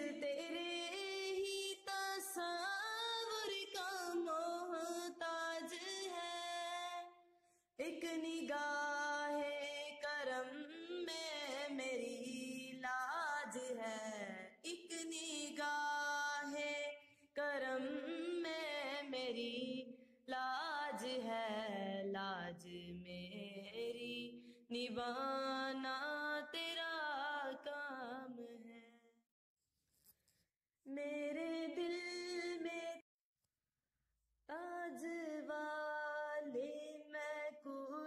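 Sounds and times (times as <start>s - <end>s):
person singing devotional melody: 0.0s - 7.1s.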